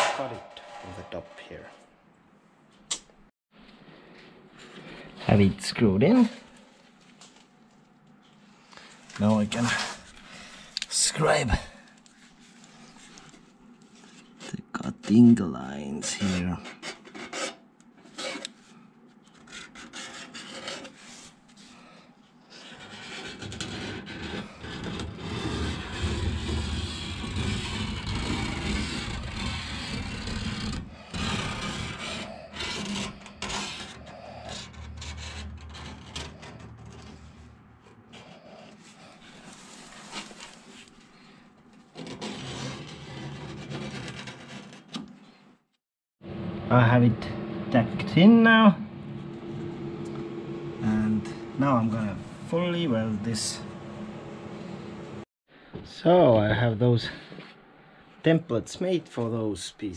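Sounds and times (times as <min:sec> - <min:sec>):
scriber scratching sheet steel: 0:16.1 - 0:18.6, 0:19.3 - 0:21.3, 0:22.5 - 0:37.5, 0:41.9 - 0:45.0.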